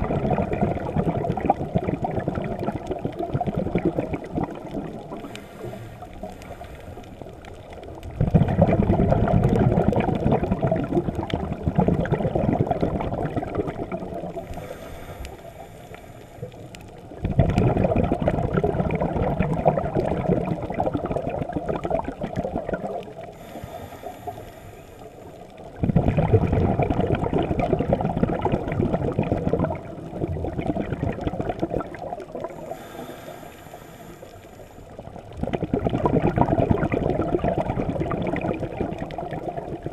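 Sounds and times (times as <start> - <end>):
diver exhaling bubbles: 0.0 - 7.2, 8.1 - 16.6, 17.2 - 24.7, 25.8 - 39.9
high hiss of inhalation: 14.5 - 16.6, 23.4 - 25.2, 32.6 - 34.9.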